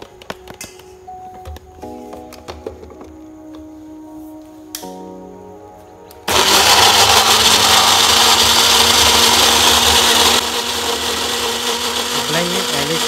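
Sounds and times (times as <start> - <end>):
blender running: 6.3 - 13.0.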